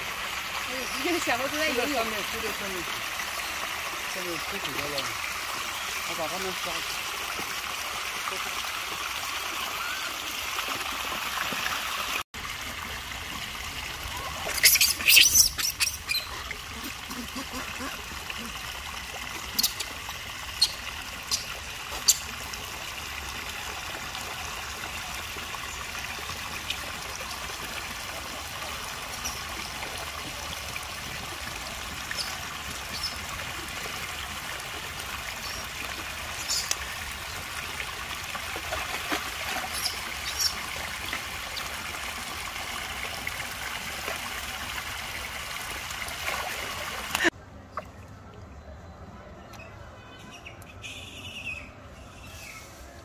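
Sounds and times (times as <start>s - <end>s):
water trickling into a pool: 0.0s - 48.7s
water splashes and taps: 10.5s - 17.9s, 34.9s - 37.1s, 38.1s - 44.6s, 45.3s - 48.0s.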